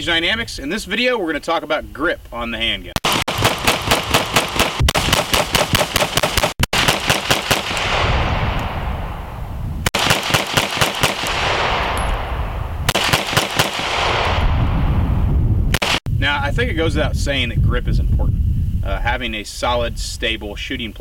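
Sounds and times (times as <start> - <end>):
pistol shots in rapid strings: 3.0 - 8.1, 9.9 - 11.9, 12.9 - 14.3.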